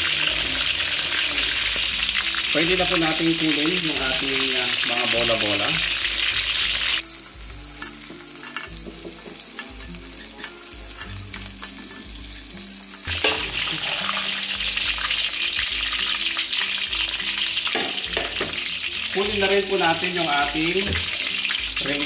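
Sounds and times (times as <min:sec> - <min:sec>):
fish deep-frying in oil: 0:00.0 - 0:22.0
spatula scraping a wok: 0:06.0 - 0:17.8.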